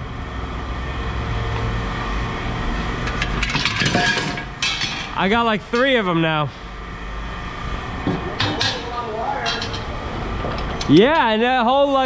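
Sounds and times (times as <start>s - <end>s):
steady low rumble: 0.0s - 12.0s
hard objects scraping and rattling: 3.0s - 5.2s, 8.1s - 11.0s.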